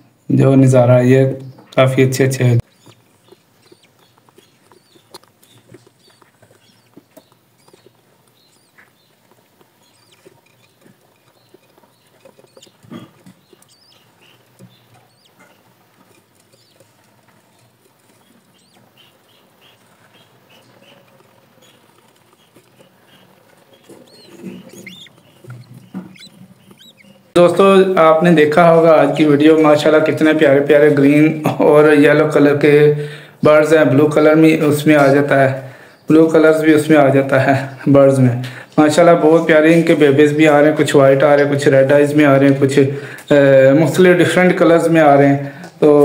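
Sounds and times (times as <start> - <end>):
birds scratching and shuffling: 0.0 - 31.3, 32.1 - 46.0
soft high chick peeps: 1.4 - 30.4.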